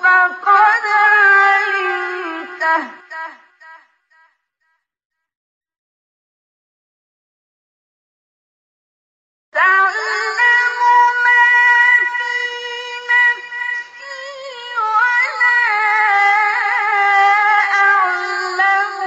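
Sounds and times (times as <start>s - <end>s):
man chanting melodically: 0.0s - 3.8s, 9.6s - 19.0s.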